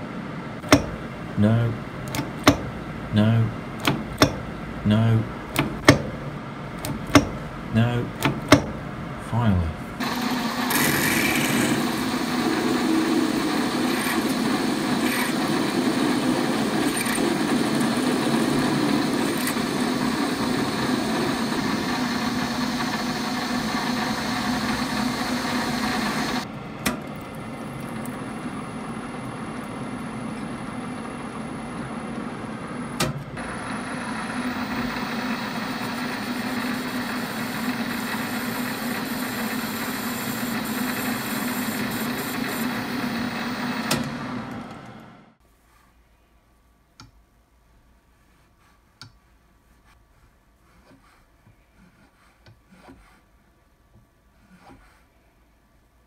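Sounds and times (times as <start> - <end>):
metal lathe humming: 9.9 - 26.5, 27.6 - 45.4
drill cutting metal: 10.0 - 26.5, 33.4 - 44.7.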